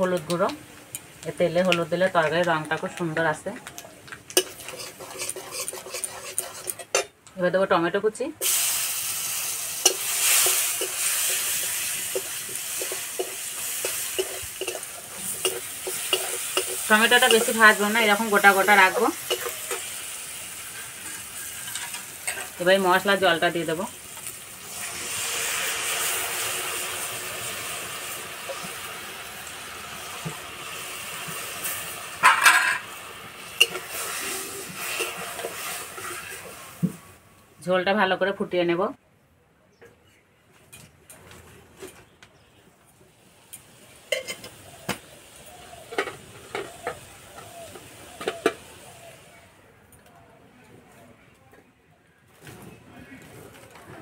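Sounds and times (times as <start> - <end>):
tomato sizzling in hot oil: 0.0 - 7.7, 8.4 - 37.3, 43.3 - 49.3
metal spatula scraping pan: 4.4 - 7.1, 9.8 - 19.9, 31.7 - 32.9, 33.6 - 36.6
spatula scraping bowl: 4.4 - 7.1.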